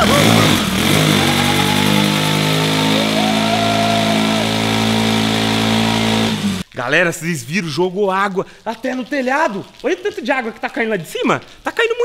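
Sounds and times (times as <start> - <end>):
motorcycle engine revving high: 0.0 - 6.6
tyre spraying water: 0.0 - 6.7.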